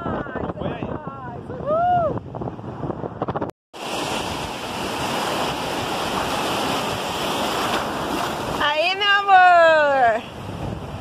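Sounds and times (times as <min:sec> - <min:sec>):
wind buffeting microphone: 0:00.0 - 0:11.0
sea surf breaking: 0:02.7 - 0:11.0.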